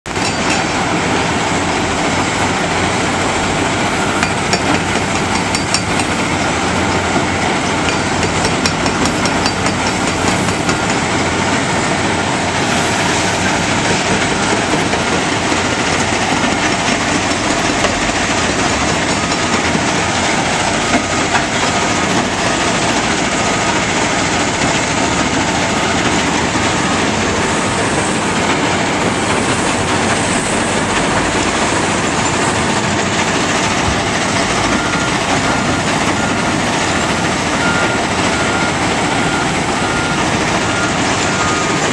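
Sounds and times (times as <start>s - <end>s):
hydraulic breaker hammering concrete: 0.1s - 0.8s, 4.0s - 11.1s
diesel machinery: 0.1s - 41.9s
rock crusher running: 0.1s - 41.9s.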